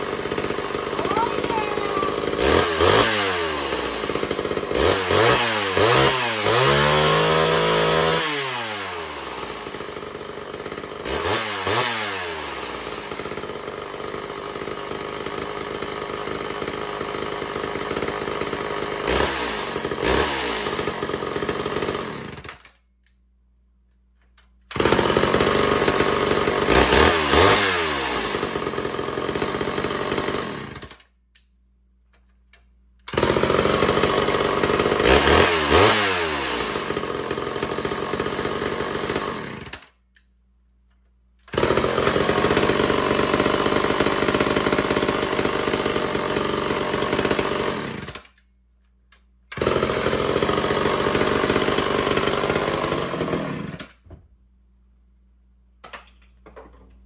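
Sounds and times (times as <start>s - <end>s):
chainsaw idling and revving: 0.0s - 22.6s, 24.7s - 31.0s, 33.1s - 40.0s, 41.4s - 48.4s, 49.5s - 54.0s.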